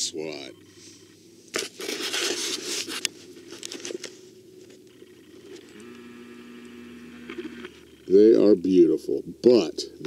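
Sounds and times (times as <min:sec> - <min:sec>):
low steady hum: 0:00.0 - 0:10.0
camera rustling against clothing: 0:00.8 - 0:06.0.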